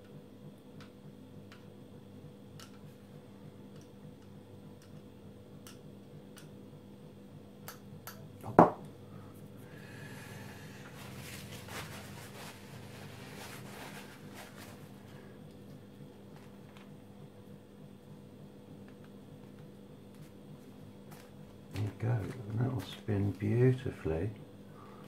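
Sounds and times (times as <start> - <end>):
soft rubbing and handling: 10.2 - 17.4, 18.8 - 23.8.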